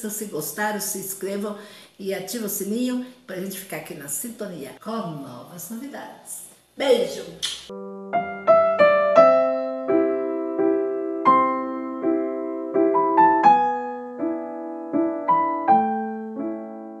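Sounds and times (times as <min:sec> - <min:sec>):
piano notes and chords: 0:07.7 - 0:17.0.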